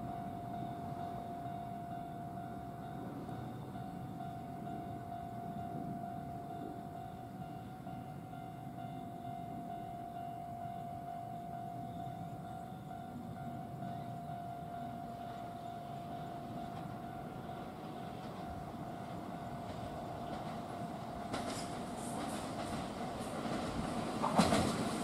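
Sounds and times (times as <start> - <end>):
distant train rumble: 0.0 - 25.0
wheel and rail clatter: 16.2 - 25.0.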